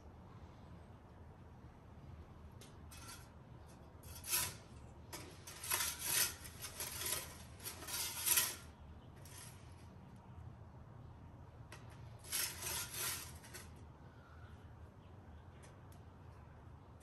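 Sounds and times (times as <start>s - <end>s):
metal pizza peel scraping oven floor: 2.9s - 9.6s, 12.2s - 13.8s.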